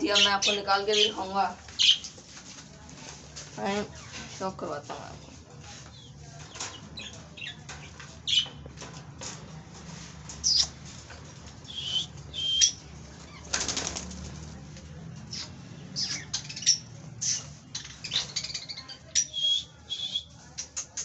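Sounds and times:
wings flapping: 13.2 - 14.6.

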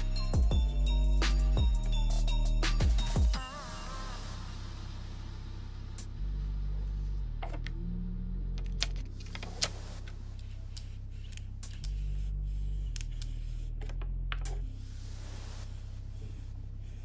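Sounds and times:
soft background music: 0.0 - 17.0
rubbing hiss: 14.7 - 17.0.

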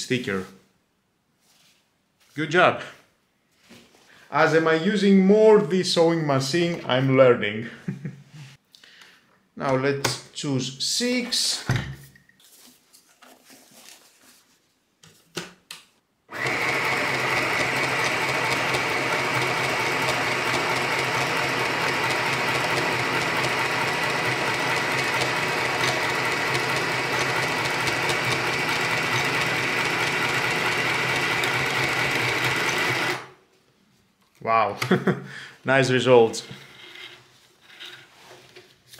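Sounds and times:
sewing machine running: 16.3 - 33.3.

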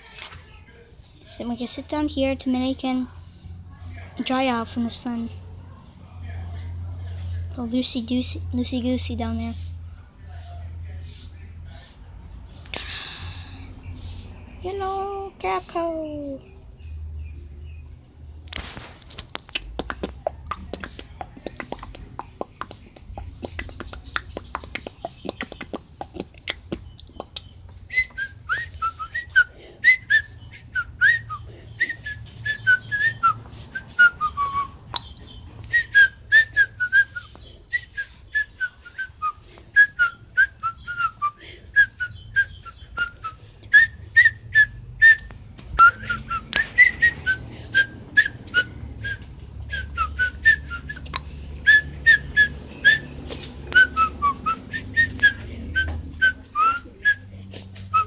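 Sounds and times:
high whistled chirps: 27.4 - 51.1.

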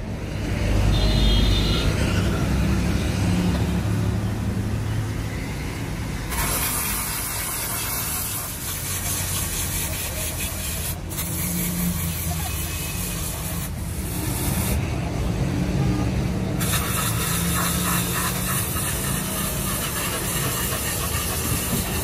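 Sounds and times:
grinder grinding rubber: 17.1 - 22.0.

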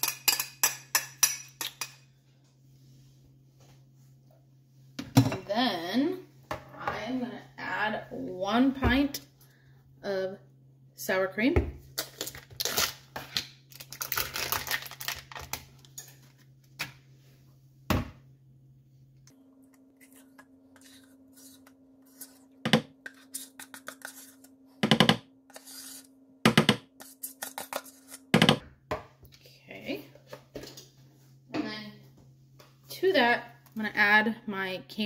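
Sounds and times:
spoon scraping plastic tub: 20.0 - 26.1, 26.9 - 28.5.

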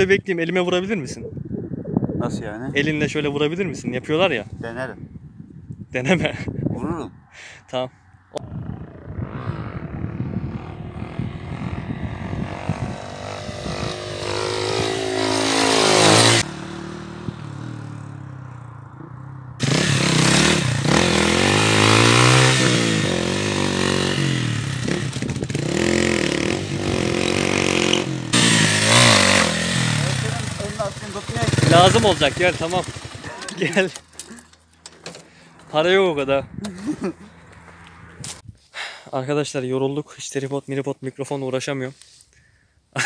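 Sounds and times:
motorcycle engine revving: 8.4 - 38.4.

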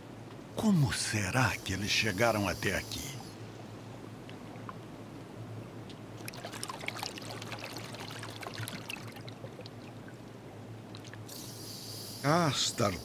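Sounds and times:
underwater hiss: 11.3 - 13.0.

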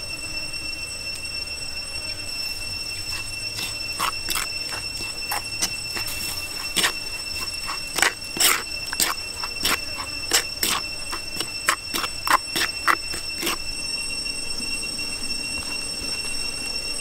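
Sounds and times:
high-pitched whine: 0.0 - 17.0
utensil clinking in stone mortar: 2.8 - 13.7.

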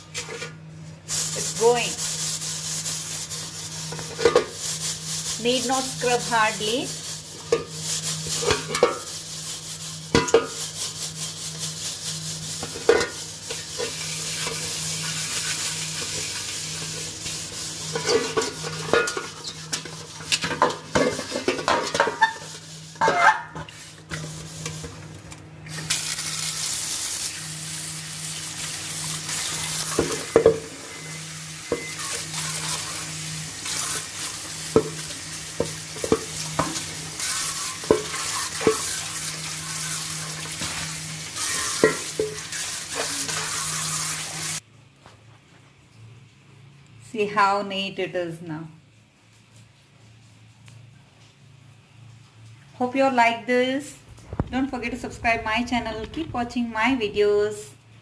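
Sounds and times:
steel scrubber scouring metal pot: 1.1 - 25.0, 25.7 - 44.6.

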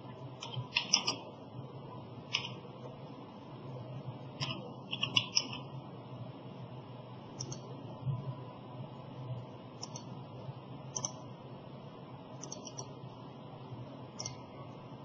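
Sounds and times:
steady low hum: 0.0 - 15.0
keyboard keystrokes: 0.4 - 1.2, 4.4 - 5.6, 12.4 - 12.9
mouse clicks: 0.4 - 1.2, 4.4 - 5.6, 7.4 - 7.7, 9.8 - 10.1, 10.9 - 11.2, 12.4 - 12.9, 14.2 - 14.4.

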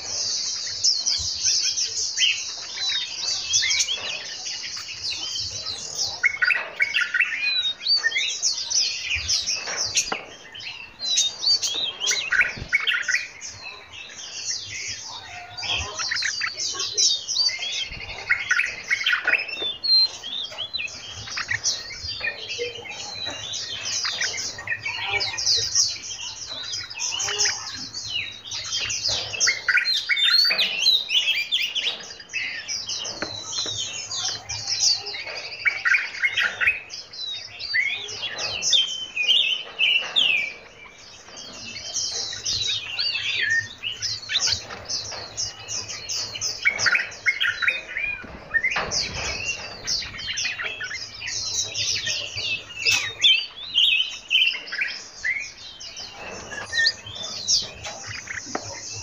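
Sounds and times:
songbirds chirping and singing: 0.0 - 59.0.

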